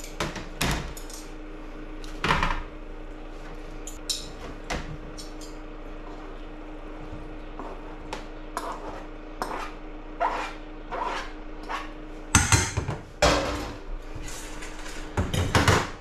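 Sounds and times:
fork scraping cutting board: 0:08.6 - 0:12.0.

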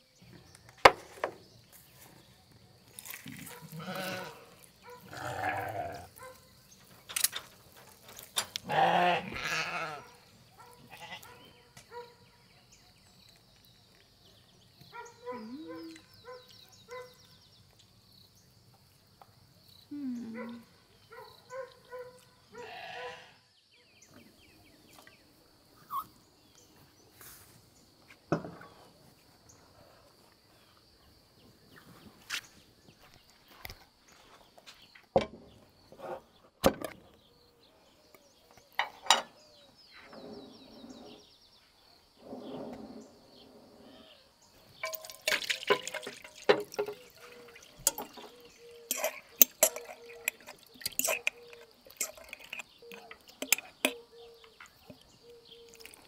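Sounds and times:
farm animal bleating: 0:03.4 - 0:06.1, 0:08.6 - 0:10.2, 0:10.8 - 0:11.4, 0:22.5 - 0:23.4.

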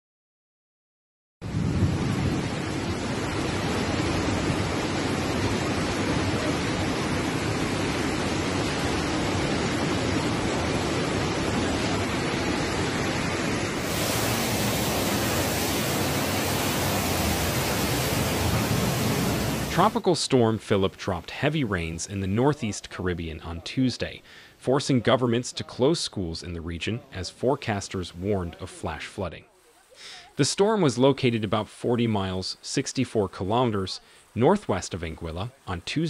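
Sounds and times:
floodwater rushing: 0:02.2 - 0:20.1.

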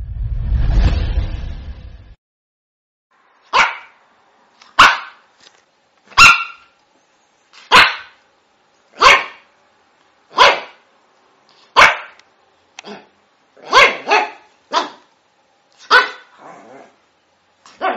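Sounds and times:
dog barking: 0:03.5 - 0:04.0, 0:04.8 - 0:05.2, 0:06.2 - 0:06.8, 0:07.6 - 0:08.2, 0:09.0 - 0:09.5, 0:10.3 - 0:10.8, 0:11.7 - 0:12.2, 0:12.8 - 0:15.1, 0:15.8 - 0:16.7, 0:17.7 - 0:17.9.

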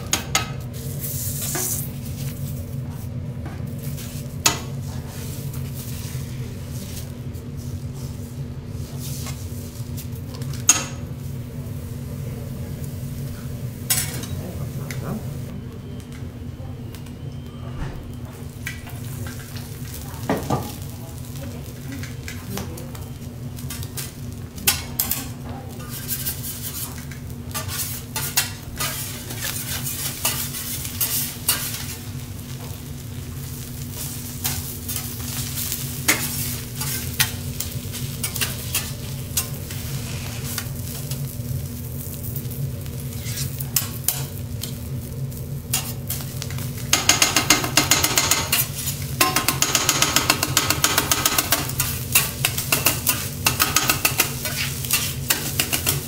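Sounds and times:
egg sizzling on a griddle: 0:00.1 - 0:02.7, 0:18.4 - 0:56.0
metal spatulas scraping: 0:24.7 - 0:32.0, 0:43.1 - 0:44.3, 0:48.0 - 0:56.0.

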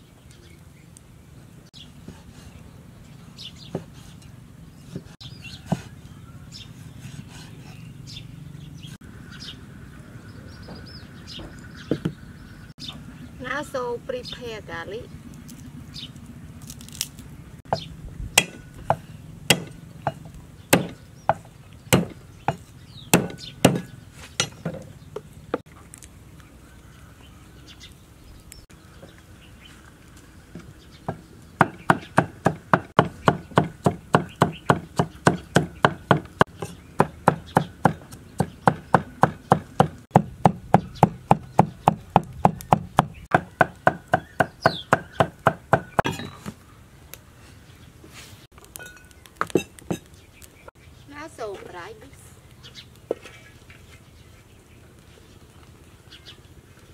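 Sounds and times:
cleaver chopping on wooden board: 0:18.4 - 0:24.8, 0:31.1 - 0:46.3.

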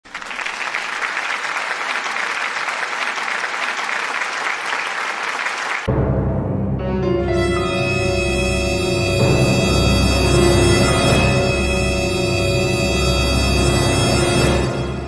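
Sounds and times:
crowd applauding: 0:00.0 - 0:05.9
music with low sustained tones: 0:05.9 - 0:15.0.

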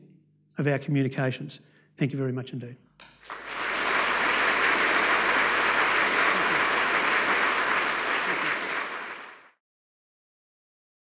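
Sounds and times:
audience applauding: 0:03.2 - 0:09.6.

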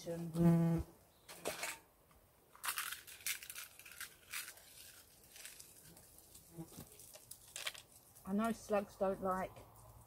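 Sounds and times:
plastic crinkling and crackling: 0:02.6 - 0:08.6.

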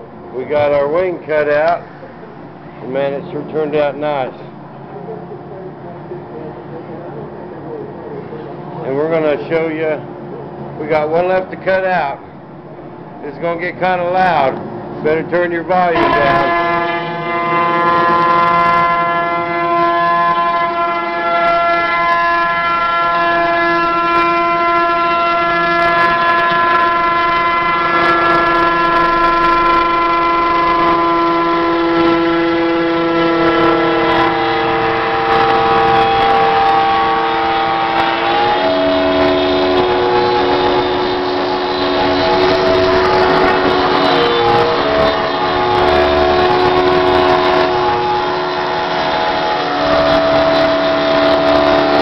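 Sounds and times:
router cutting foam whine: 0:25.5 - 0:52.0.

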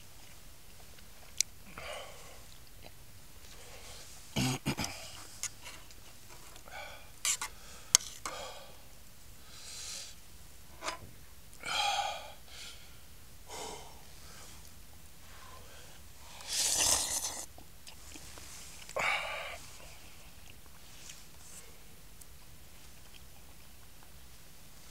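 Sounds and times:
loud rushes of breath: 0:09.4 - 0:10.2, 0:11.6 - 0:14.6, 0:15.3 - 0:17.5
person eating noisily: 0:16.3 - 0:21.2.

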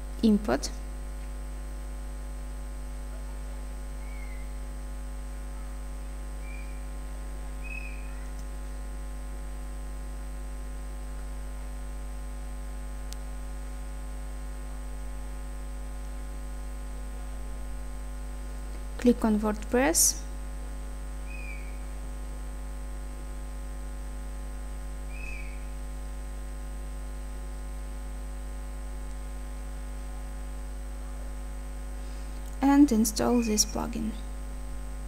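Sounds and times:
electrical mains hum: 0:00.0 - 0:35.0
faint high whine: 0:00.0 - 0:35.0
faint short chirps: 0:04.0 - 0:04.6, 0:06.4 - 0:06.9, 0:21.2 - 0:21.9, 0:25.1 - 0:25.8
faint click: 0:13.1 - 0:13.3.

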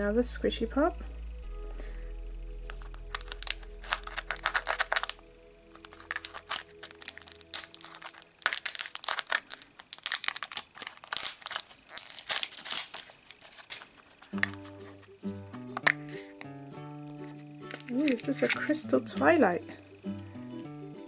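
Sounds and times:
plastic shrink-wrap crinkling: 0:02.6 - 0:16.4, 0:17.2 - 0:19.2.

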